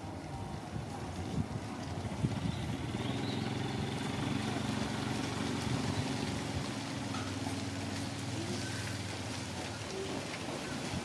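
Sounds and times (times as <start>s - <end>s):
engine idling hum: 1.5s - 10.0s.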